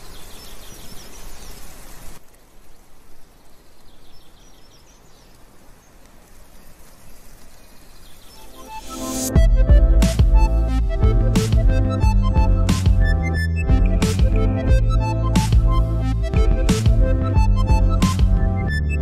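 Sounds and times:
leaves rustling in breeze: 0.0s - 9.4s.

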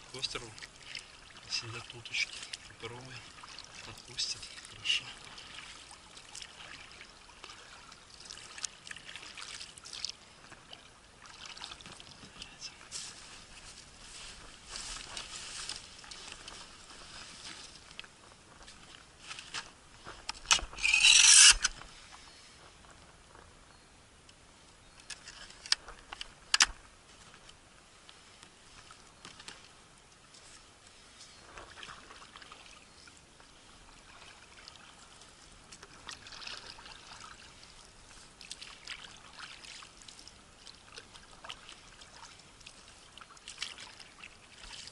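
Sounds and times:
waves lapping against boat hull: 0.0s - 19.0s, 28.3s - 44.9s.

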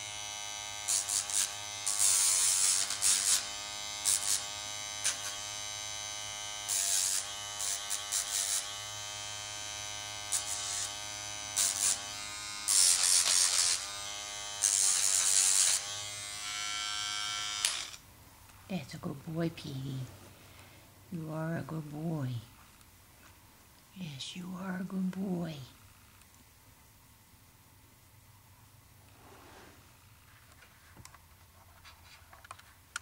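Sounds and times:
grinding hiss on nails: 0.0s - 18.0s, 29.0s - 30.3s
pet nail grinder buzzing: 0.0s - 18.0s.

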